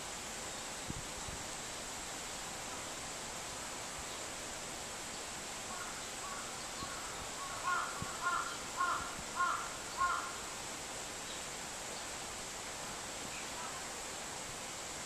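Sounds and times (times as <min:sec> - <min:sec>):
faint high-pitched hiss: 0:00.0 - 0:15.0
crow cawing: 0:05.7 - 0:10.4.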